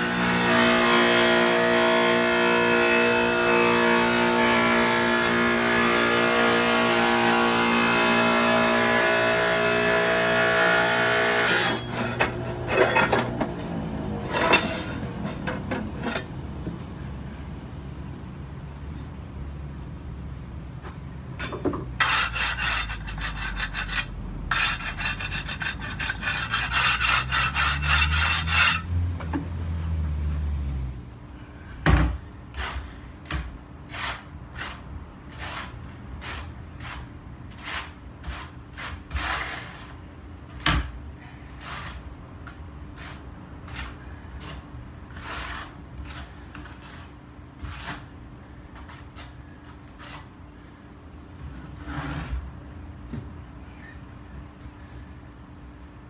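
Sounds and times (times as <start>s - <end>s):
wet tile saw grinding tile: 0.0s - 16.4s, 22.0s - 29.0s, 43.0s - 48.1s
tiles scraping on floor: 11.6s - 16.4s, 22.0s - 29.0s, 51.5s - 52.6s.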